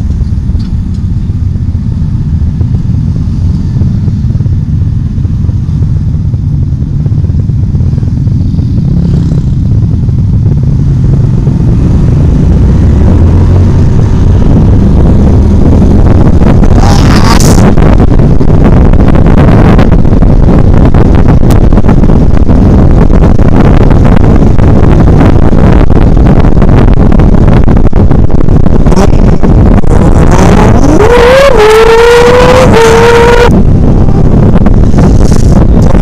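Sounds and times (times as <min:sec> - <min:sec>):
motorcycle engine: 0:00.0 - 0:36.0
rising whine: 0:00.0 - 0:36.0
wind buffeting microphone: 0:00.0 - 0:36.0.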